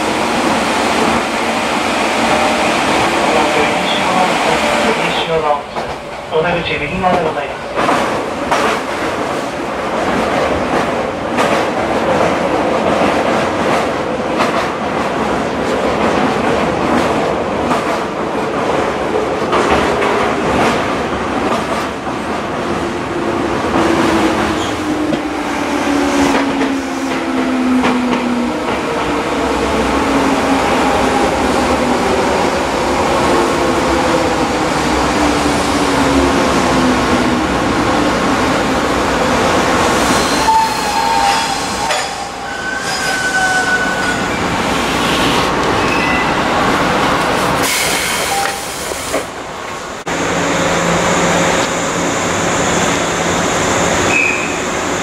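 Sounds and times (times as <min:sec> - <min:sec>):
train wheel rumble and clatter: 0:00.0 - 0:40.5.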